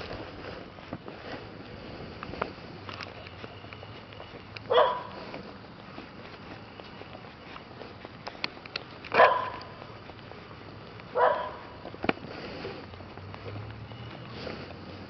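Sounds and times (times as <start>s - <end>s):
dog barking: 4.7s - 5.2s, 9.1s - 9.8s, 11.1s - 11.8s.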